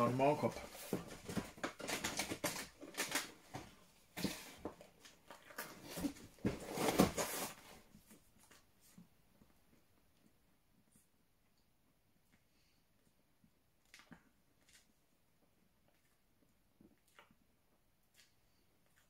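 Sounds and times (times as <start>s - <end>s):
packaging rustling: 0.4s - 7.8s
snack being chewed: 13.8s - 19.0s.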